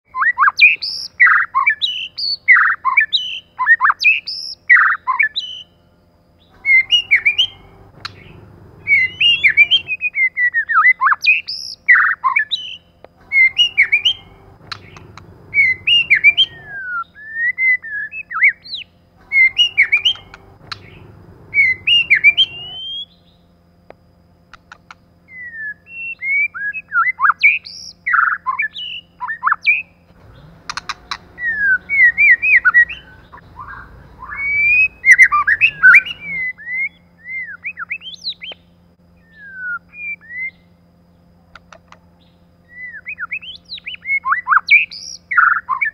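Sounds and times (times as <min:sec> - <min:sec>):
songbird singing: 0:00.1 - 0:45.9
low rumble: 0:06.6 - 0:10.0, 0:13.2 - 0:16.8, 0:19.2 - 0:22.8.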